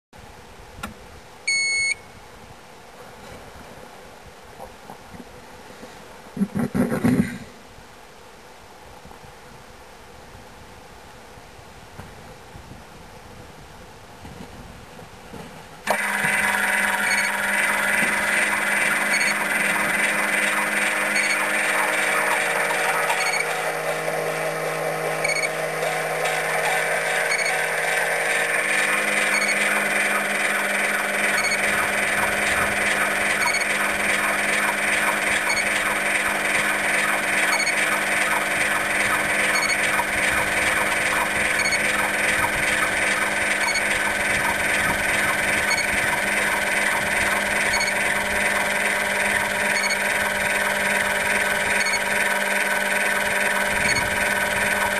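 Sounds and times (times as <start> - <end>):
mechanical running noise: 15.8 - 54.9.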